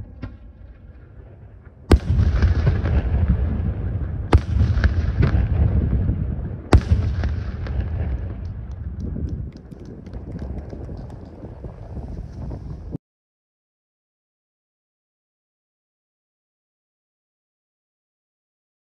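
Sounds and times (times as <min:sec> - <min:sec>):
firework bangs with rolling echo: 0:00.0 - 0:12.3
firework crackles: 0:01.9 - 0:13.0.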